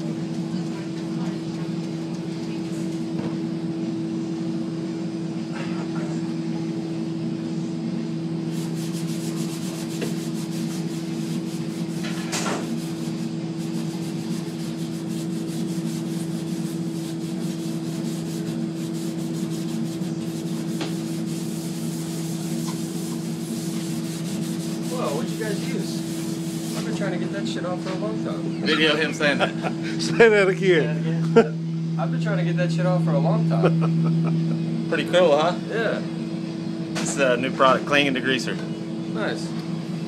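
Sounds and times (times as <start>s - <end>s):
low machine hum: 0.0s - 40.0s
scouring pad scrubbing metal: 8.5s - 27.0s.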